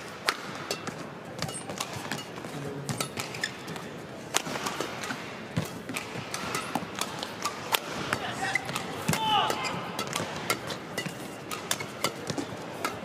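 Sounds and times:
rackets striking shuttlecock: 0:00.0 - 0:13.0
shoes squeaking on court: 0:00.7 - 0:04.1, 0:08.1 - 0:13.0.

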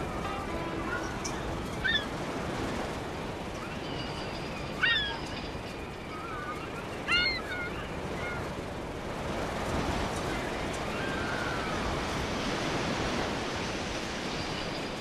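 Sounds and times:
steady rushing noise: 0:00.0 - 0:04.6
birds calling: 0:00.2 - 0:08.6.

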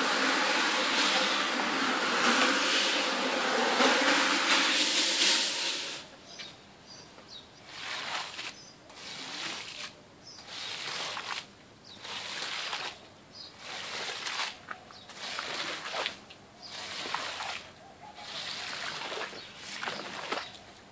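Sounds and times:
carpet cleaning machine running: 0:00.0 - 0:06.0
squeegee swishing on wet carpet: 0:00.0 - 0:06.1, 0:07.6 - 0:13.0, 0:13.6 - 0:20.6
birds chirping faintly: 0:06.1 - 0:11.1, 0:13.3 - 0:13.7, 0:17.8 - 0:20.9.

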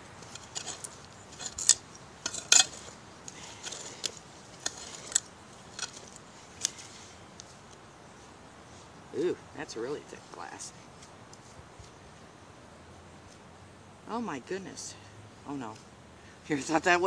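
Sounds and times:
digging tool scraping soil: 0:00.0 - 0:07.8
tool clinking on buried glass: 0:00.2 - 0:06.8.

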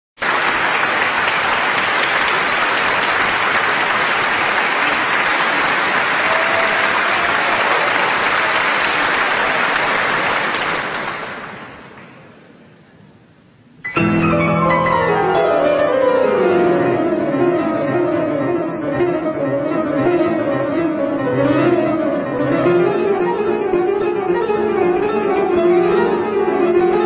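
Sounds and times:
large audience applauding: 0:00.2 - 0:12.2.

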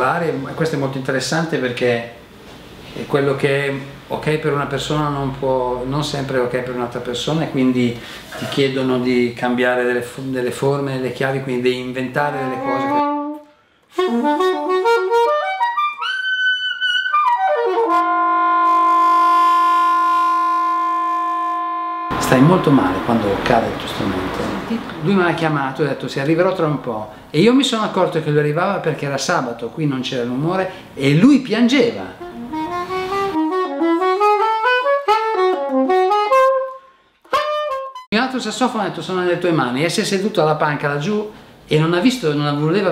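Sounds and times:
solo saxophone: 0:12.2 - 0:23.1, 0:32.2 - 0:38.1.

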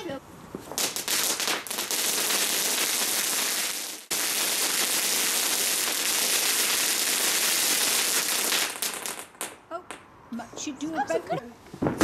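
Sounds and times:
firework fountain hissing and crackling: 0:00.6 - 0:09.6.

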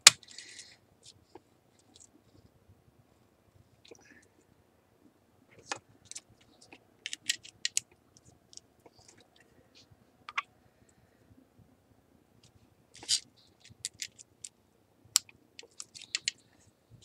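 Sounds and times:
plastic parts clicking: 0:07.0 - 0:07.9, 0:13.0 - 0:14.5, 0:15.2 - 0:16.4.

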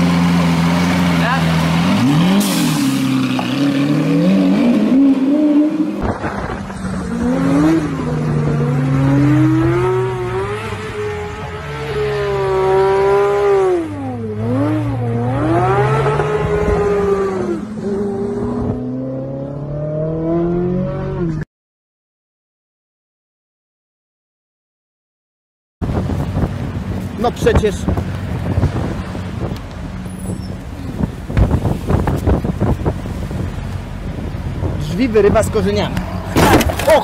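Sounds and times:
car engines revving hard: 0:00.0 - 0:21.4, 0:25.8 - 0:37.0
tyre squeal: 0:30.0 - 0:30.6.

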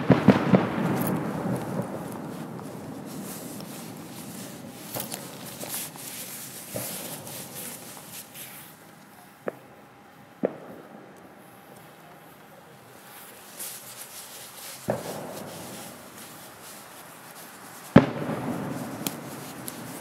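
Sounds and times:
sharp firework bangs: 0:00.0 - 0:08.1, 0:14.8 - 0:16.6, 0:17.8 - 0:20.0
firework burst rumble: 0:00.0 - 0:08.4, 0:13.0 - 0:20.0
firework pops: 0:00.0 - 0:08.4, 0:10.4 - 0:11.2, 0:13.2 - 0:20.0.

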